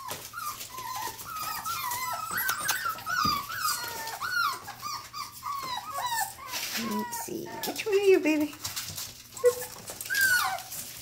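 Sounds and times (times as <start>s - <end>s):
puppies whining and squealing: 0.0s - 8.2s, 8.9s - 11.0s.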